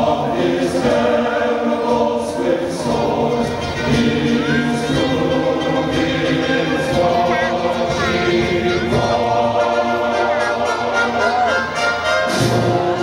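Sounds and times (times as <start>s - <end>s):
choir singing held chords: 0.0s - 13.0s.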